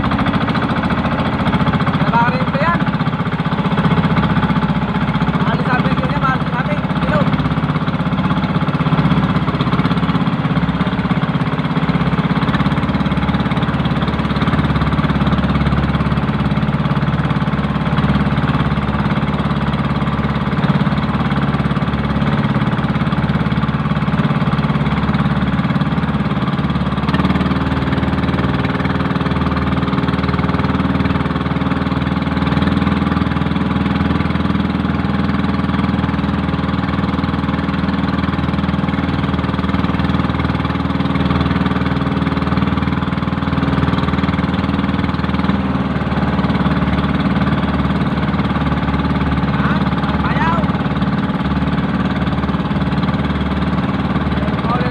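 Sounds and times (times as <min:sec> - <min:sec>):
boat engine droning: 0:00.0 - 0:54.9.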